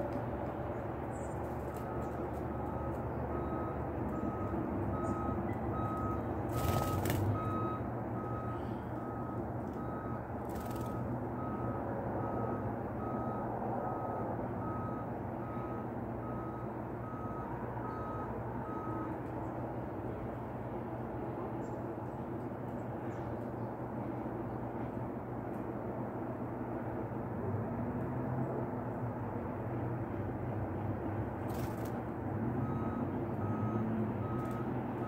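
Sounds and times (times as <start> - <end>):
low engine rumble: 0.0 - 27.8, 28.4 - 35.0
reversing alarm beeping: 1.8 - 19.1, 32.6 - 34.8.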